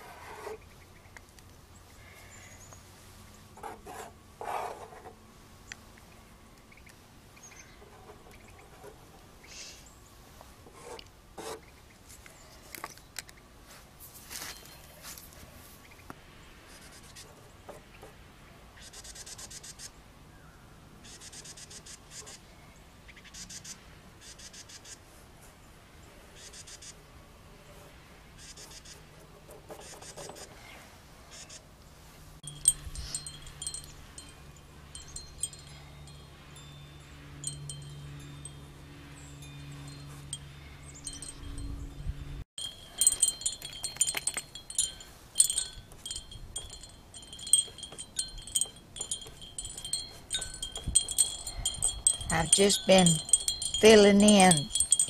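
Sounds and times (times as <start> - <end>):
wind chimes ringing: 14.3 - 14.9, 32.4 - 55.0.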